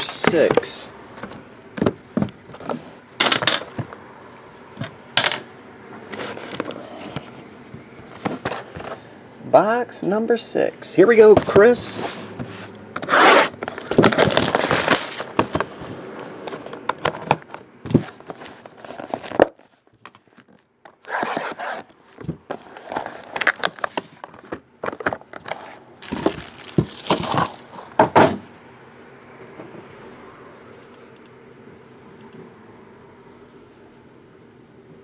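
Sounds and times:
plastic wrap ripping and crinkling: 13.2 - 15.4, 22.8 - 24.2, 26.0 - 27.8.

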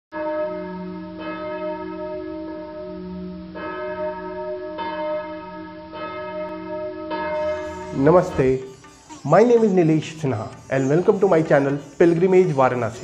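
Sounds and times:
bell ringing: 6.0 - 13.0.

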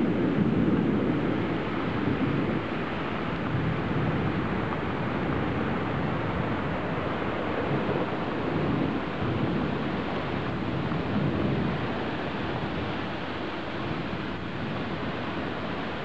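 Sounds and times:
heavy rain pouring: 0.0 - 16.0.

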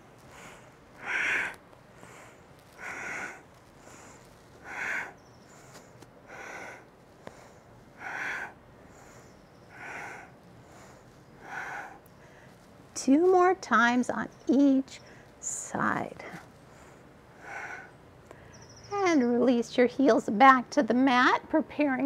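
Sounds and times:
woman breathing forcefully: 0.0 - 12.6, 16.6 - 18.6.

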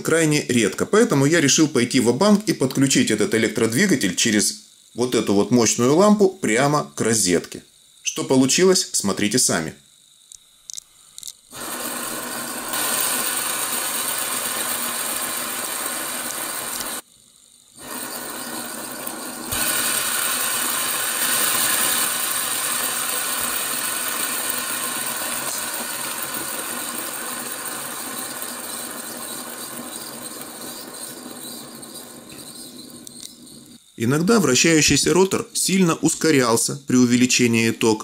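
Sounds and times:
motor rattling whir: 17.8 - 33.8.

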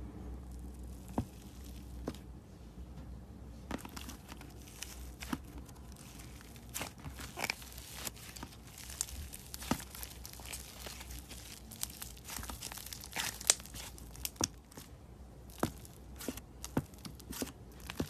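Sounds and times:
slime clicking and crackling: 3.7 - 18.0.

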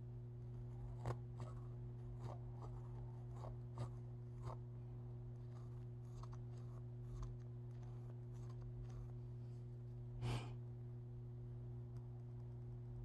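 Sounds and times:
steady low hum: 0.0 - 13.0
pen scratching on wood: 0.7 - 4.6, 5.4 - 9.2
person exhaling: 10.2 - 10.6.

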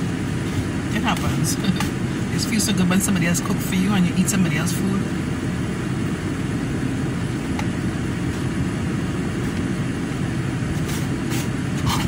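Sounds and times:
vehicle rumble inside car: 0.0 - 12.0.

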